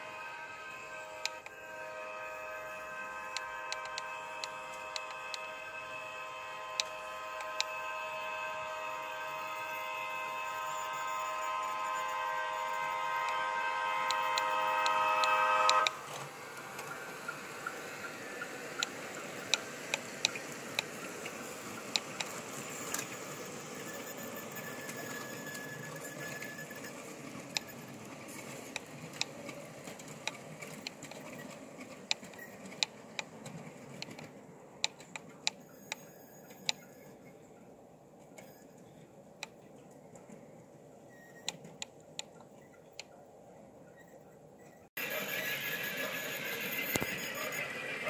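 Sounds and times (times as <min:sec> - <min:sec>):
model train multi-tone horn: 0:00.0 - 0:30.8, 0:45.0 - 0:48.0
train wheels clicking over rail joints: 0:14.1 - 0:37.4.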